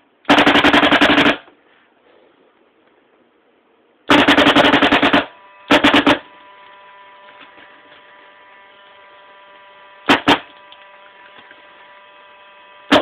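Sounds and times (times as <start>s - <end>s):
paintball marker rapid fire: 0.3s - 1.5s, 4.1s - 6.3s, 10.0s - 10.5s
electrical hum: 1.4s - 13.0s.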